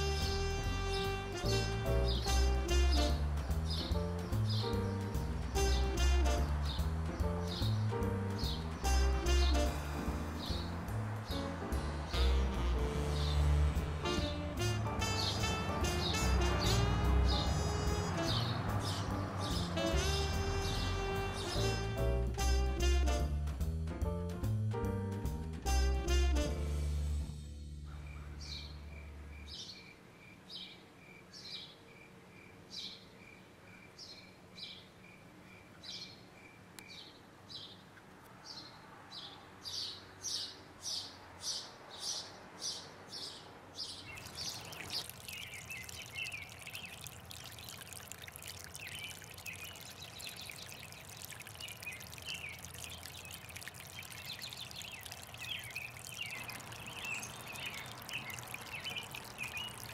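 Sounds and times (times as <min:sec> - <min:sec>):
stream trickling over rocks: 0:01.4 - 0:22.6, 0:43.9 - 0:59.9
sparrow chirping: 0:06.6 - 0:09.6, 0:15.1 - 0:20.0, 0:38.5 - 0:47.9, 0:48.7 - 0:59.9.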